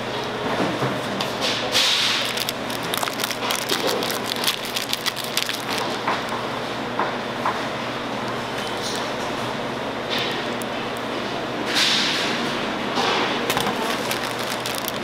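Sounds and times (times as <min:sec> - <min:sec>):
factory machinery hum: 0:00.0 - 0:15.0
plastic tray lining crackling: 0:02.0 - 0:06.2, 0:13.5 - 0:15.0.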